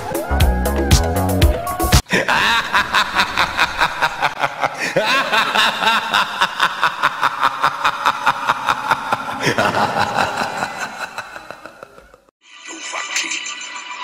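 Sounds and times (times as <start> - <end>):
dance music with beat: 0.0 - 2.0
rapid snickering laughter: 2.1 - 12.3.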